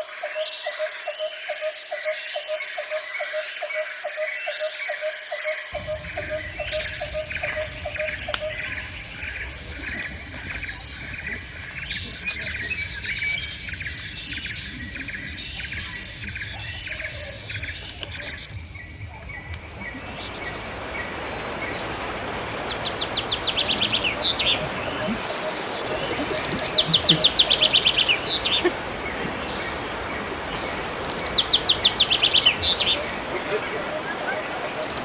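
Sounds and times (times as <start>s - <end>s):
high insect drone: 5.4s - 35.0s
birds chirping: 5.8s - 35.0s
steady hiss: 5.8s - 35.0s
bird trilling: 19.7s - 35.0s.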